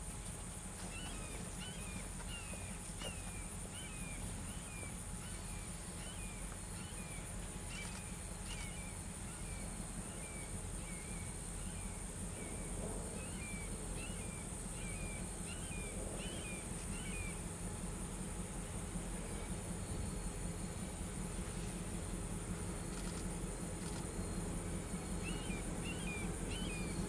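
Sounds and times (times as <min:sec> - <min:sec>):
low steady rumble: 0:00.0 - 0:27.0
bird chirping: 0:25.2 - 0:27.0.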